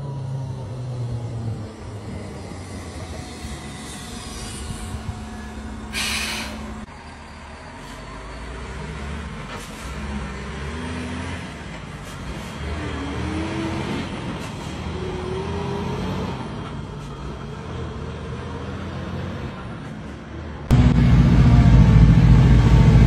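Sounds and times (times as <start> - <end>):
diesel truck driving past: 0.0 - 23.0
short rising whines: 1.7 - 6.9.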